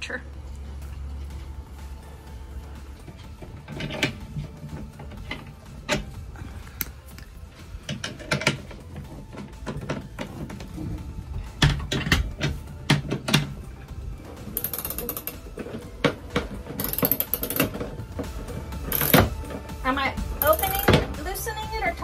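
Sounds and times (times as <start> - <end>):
metal tools knocking: 11.6 - 13.6, 14.3 - 19.7, 20.4 - 21.2
ratchet wrench clicking: 14.4 - 15.7, 16.7 - 17.9, 18.8 - 19.5, 20.4 - 21.0.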